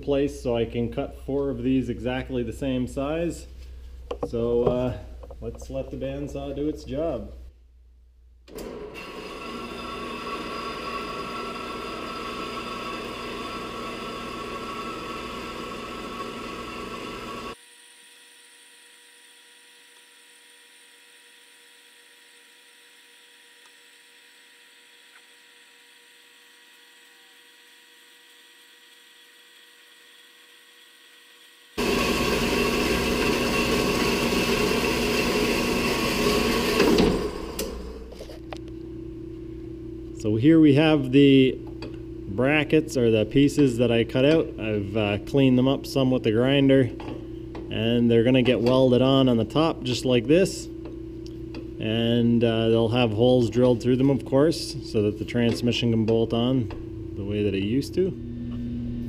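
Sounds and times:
bandsaw cutting steel: 25.3 - 38.1
faint steady hum: 37.9 - 59.0.

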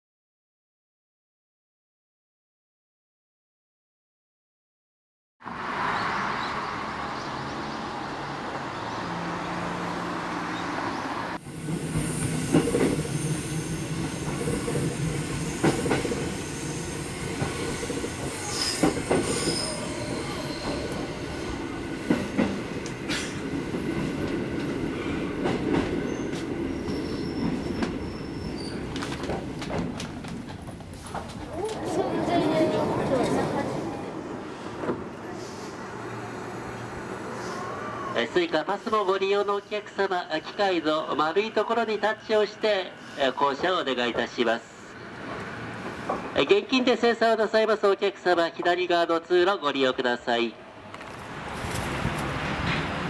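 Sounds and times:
train rumble and hum: 8.4 - 38.7, 50.6 - 53.0
high-pitched wheel squeals: 16.3 - 21.1, 26.1 - 28.8.

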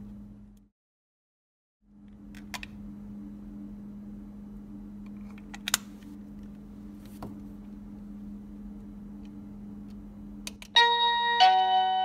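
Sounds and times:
steady low hum: 0.0 - 0.7, 1.8 - 10.8
electronic doorbell chime melody: 10.8 - 12.0.

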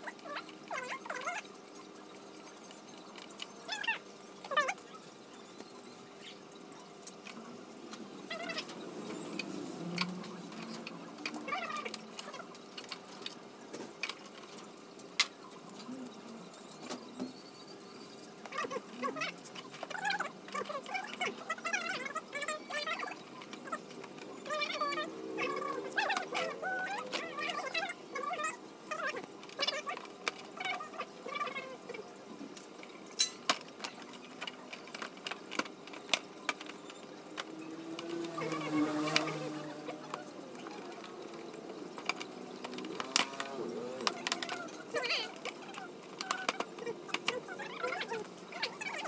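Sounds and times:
plastic panels clicking and tapping: 40.0 - 49.0.

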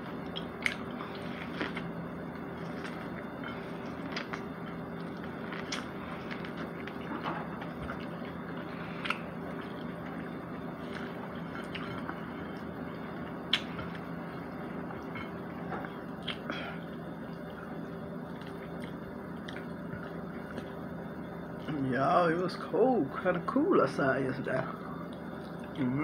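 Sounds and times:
chewing and biting chicken: 0.0 - 14.1, 17.7 - 20.8
faint hum: 0.0 - 26.0.

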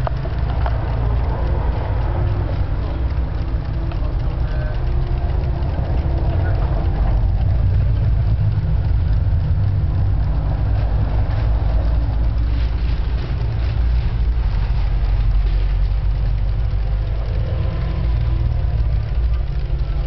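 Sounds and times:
cuckoo clocks ticking: 0.0 - 14.4
steady low rumble: 0.0 - 20.0.

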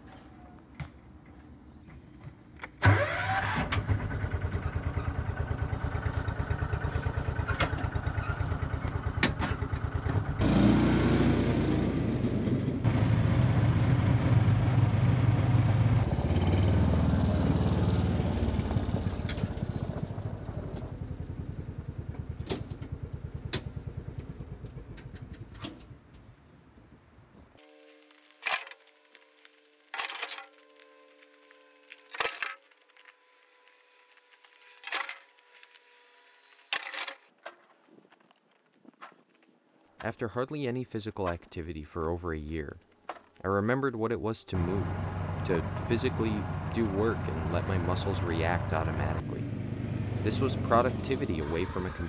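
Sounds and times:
utility vehicle engine running: 2.8 - 26.2, 44.6 - 52.0.

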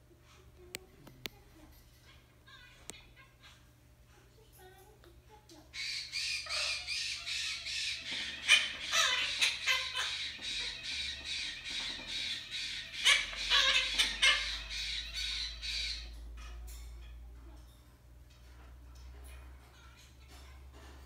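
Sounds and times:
parrot squawking: 2.0 - 3.7, 5.7 - 17.2.

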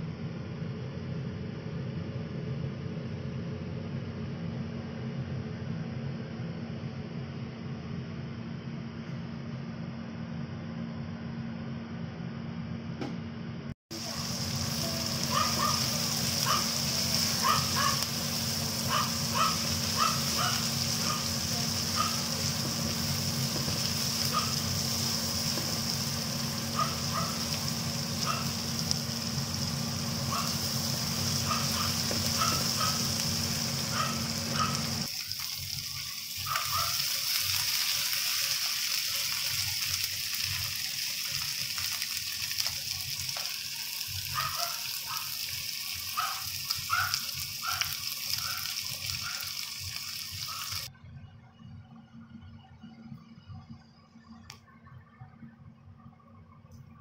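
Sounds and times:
steady low hum: 0.0 - 35.1
vegetables sizzling in oil: 13.9 - 50.9.

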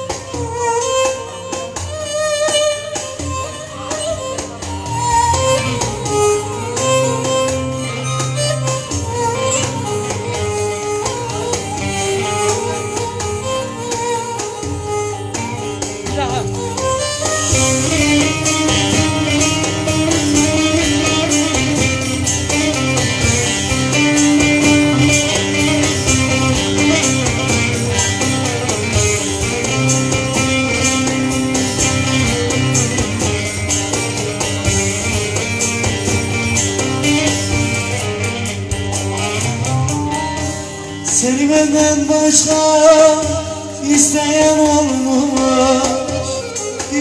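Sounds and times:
plucked long-necked lute: 0.0 - 47.0
man singing: 41.1 - 47.0.

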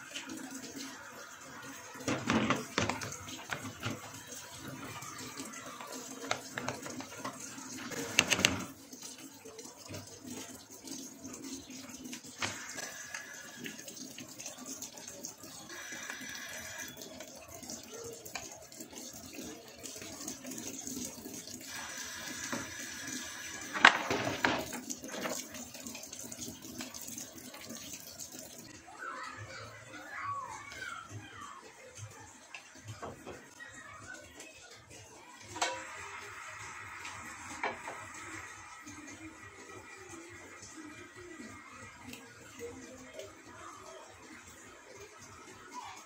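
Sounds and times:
spoon stirring batter: 2.3 - 8.6.

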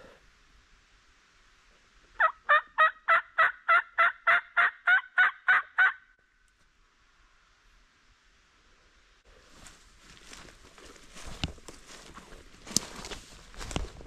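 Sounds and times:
turkey yelps: 2.2 - 6.0.

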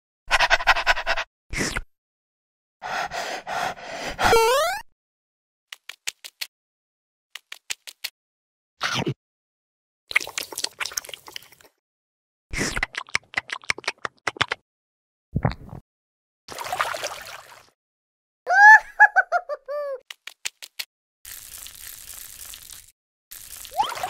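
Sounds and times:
cartoon chirping tones: 4.3 - 4.9, 23.7 - 24.0.

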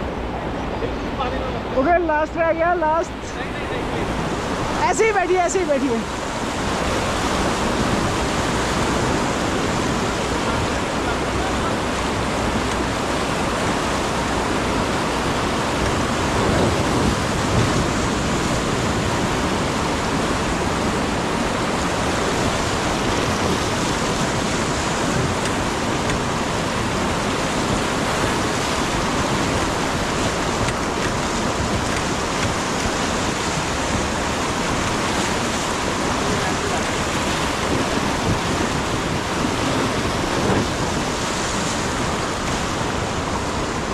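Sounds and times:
whitewater rapids roaring: 0.0 - 43.9.

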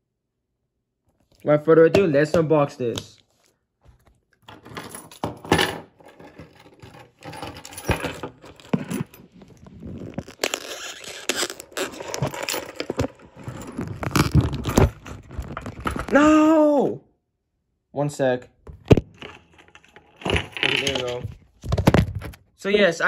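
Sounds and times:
handling scrapes and clicks: 6.0 - 16.1, 18.9 - 21.4
plastic wrap crinkling and tearing: 9.5 - 12.3.

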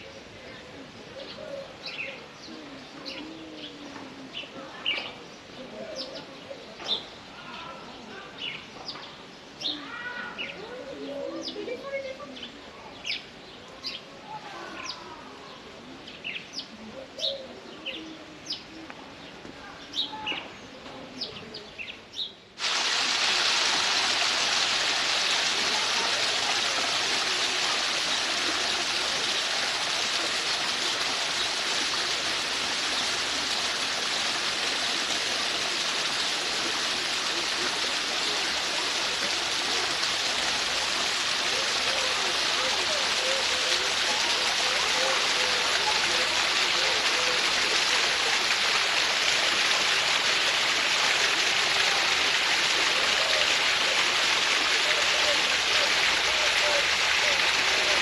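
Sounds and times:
waterfall rushing: 22.6 - 58.0.

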